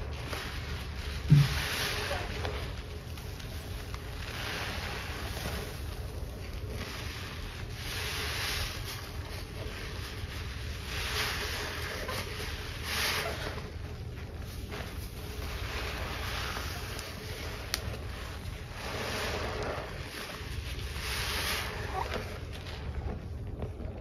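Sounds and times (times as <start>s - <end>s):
sponge squelching in suds: 0.0s - 24.0s.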